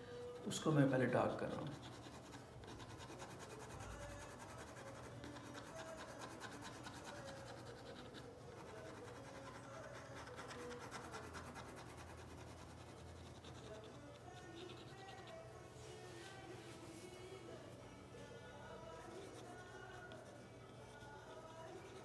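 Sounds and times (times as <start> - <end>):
pen nib scratching on paper: 1.6 - 15.5.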